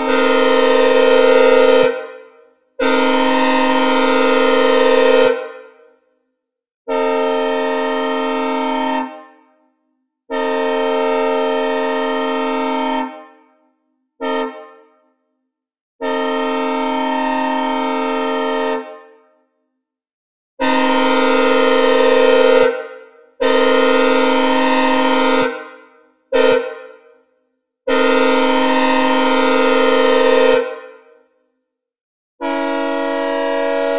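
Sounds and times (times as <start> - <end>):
synthesized train air horn blasts: 0.0 - 5.9, 6.9 - 9.6, 10.3 - 13.6, 14.2 - 15.0, 16.0 - 19.1, 20.6 - 27.1, 27.9 - 31.1, 32.4 - 33.9.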